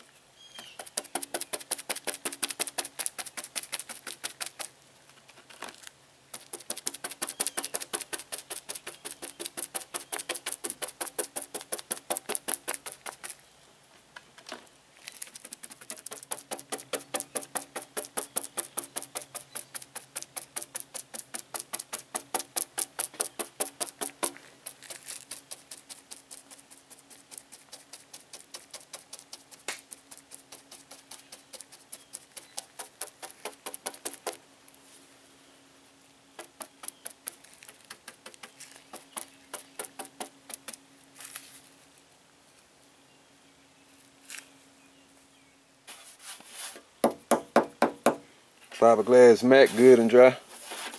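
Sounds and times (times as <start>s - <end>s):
brush dabbing wet fiberglass: 0.6s - 5.3s, 6.3s - 13.4s, 15.1s - 34.8s, 36.3s - 40.8s, 45.9s - 48.2s, 48.8s - 50.9s.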